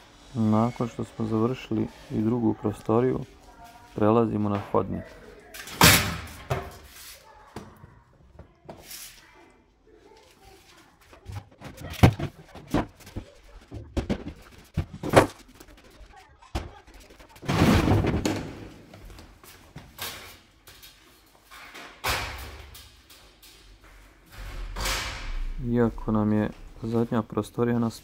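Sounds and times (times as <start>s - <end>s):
furniture bangs and thuds: 11.3s - 15.4s, 17.4s - 19.0s
crashing clatter: 11.4s - 18.8s.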